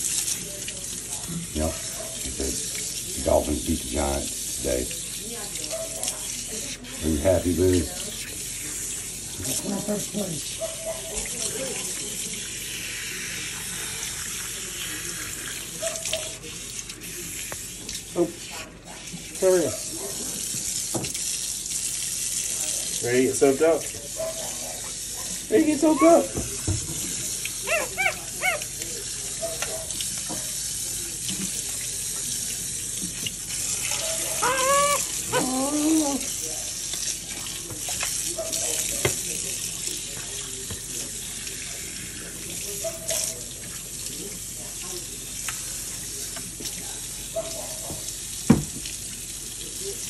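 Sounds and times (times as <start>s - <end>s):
water splashing from sink sprayer: 0.0s - 50.0s
monkey high calls: 27.6s - 28.7s, 34.0s - 35.7s.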